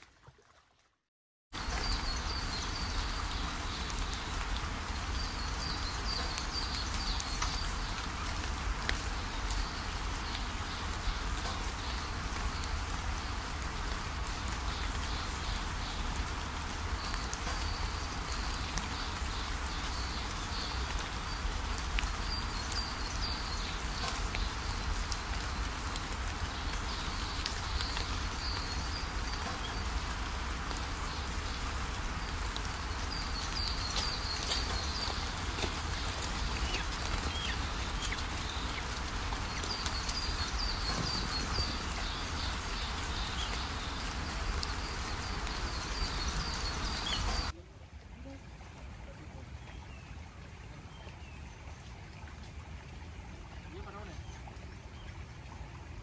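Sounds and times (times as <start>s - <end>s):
steady hiss: 1.6s - 47.5s
high chirping calls: 32.9s - 47.5s.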